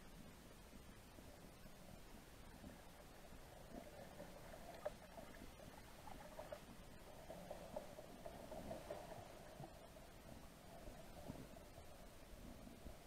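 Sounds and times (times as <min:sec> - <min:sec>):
low underwater hiss: 0:00.0 - 0:13.0
tiny squeaks and ticks: 0:03.7 - 0:09.2.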